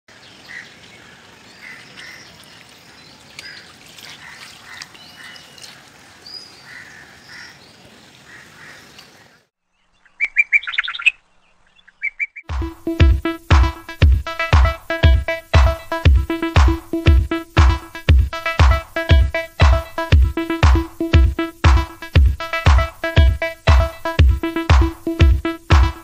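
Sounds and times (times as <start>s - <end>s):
flowing water: 0.1s - 9.4s
birds chirping: 0.1s - 12.5s
music with heavy beat: 12.5s - 26.0s.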